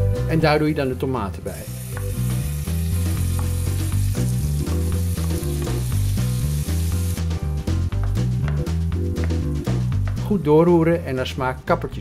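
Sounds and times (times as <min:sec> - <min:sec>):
background music with bass line: 0:00.0 - 0:12.0
oil sizzling in frying pan: 0:01.6 - 0:07.4.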